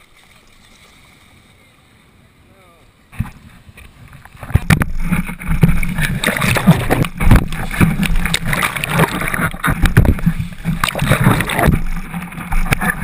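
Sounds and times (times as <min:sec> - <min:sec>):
surf splashing and rushing: 0:00.0 - 0:13.0
sharp knocks and thumps: 0:03.2 - 0:13.0.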